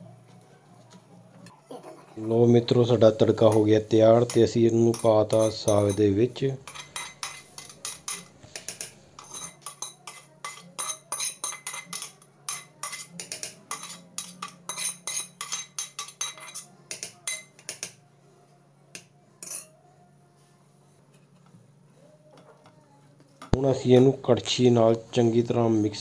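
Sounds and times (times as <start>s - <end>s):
metal spoon clinking on pan: 3.4s - 18.0s, 19.0s - 19.8s.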